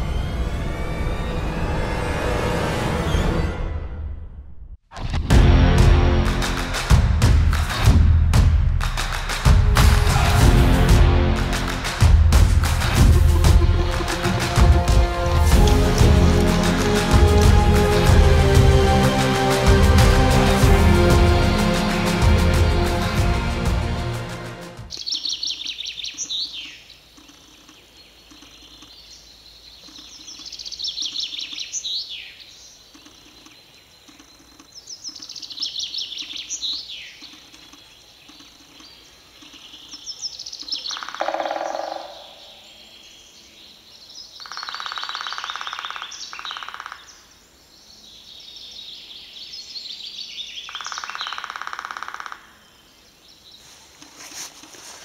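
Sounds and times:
rushing noise: 0:00.0 - 0:08.0
songbird singing: 0:24.9 - 0:55.0.

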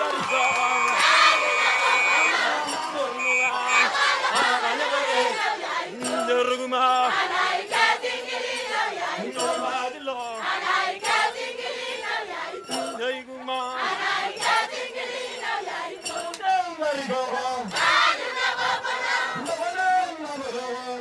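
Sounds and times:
people clapping: 0:00.0 - 0:06.2
group singing: 0:00.0 - 0:21.0
man singing into microphone: 0:05.9 - 0:07.1, 0:09.2 - 0:10.4, 0:16.1 - 0:17.7, 0:19.4 - 0:21.0.

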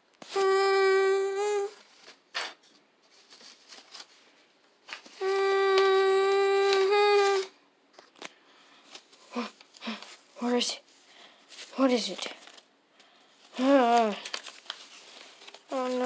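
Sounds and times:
person humming a steady note: 0:00.3 - 0:01.8, 0:05.2 - 0:07.6.

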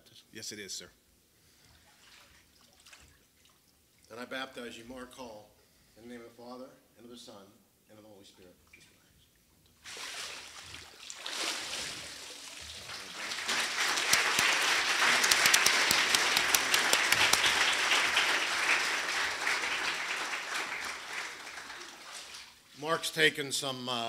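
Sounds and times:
water sloshing: 0:09.8 - 0:13.4, 0:21.8 - 0:22.8
congregation applauding: 0:12.6 - 0:22.6.

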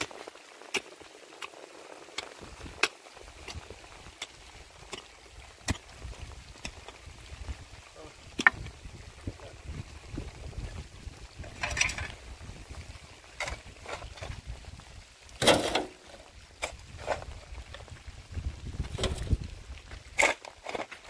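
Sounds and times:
mattock striking stony soil: 0:00.0 - 0:07.1, 0:07.8 - 0:08.8, 0:18.7 - 0:21.0
wind on microphone: 0:02.4 - 0:04.5, 0:05.7 - 0:15.4, 0:16.4 - 0:20.2.

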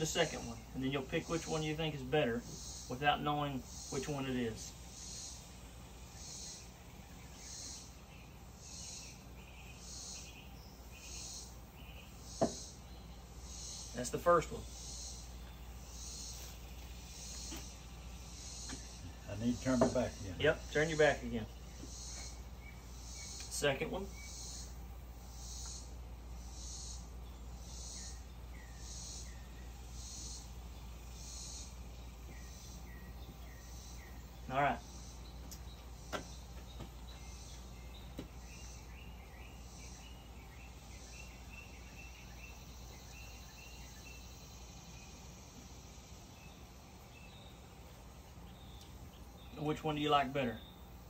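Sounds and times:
insect high buzzing pulse: 0:00.0 - 0:35.4
lower-pitched insect pulsing: 0:02.4 - 0:36.5.

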